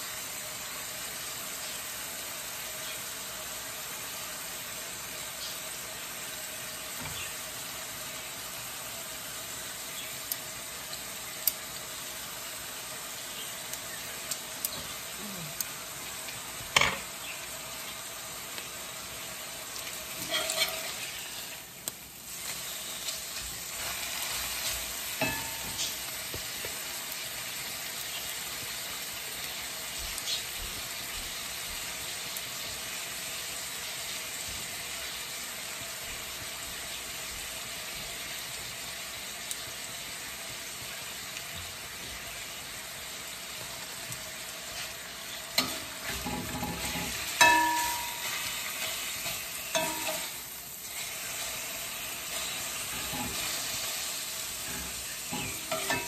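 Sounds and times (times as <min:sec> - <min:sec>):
beef sizzling in a skillet: 0:00.0 - 0:56.0
metal utensils tapping pan: 0:16.7 - 0:17.1, 0:20.2 - 0:20.9, 0:25.2 - 0:26.0, 0:45.6 - 0:50.5, 0:52.3 - 0:53.7, 0:54.6 - 0:56.0.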